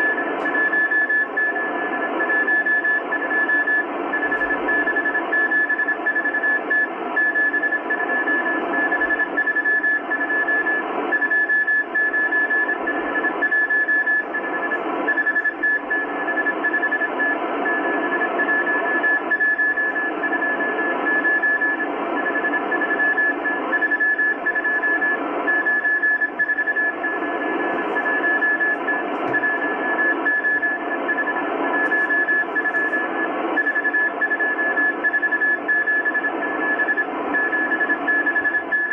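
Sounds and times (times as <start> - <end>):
morse code beeps: 0.0 - 38.9
radio static hiss: 12.7 - 38.7.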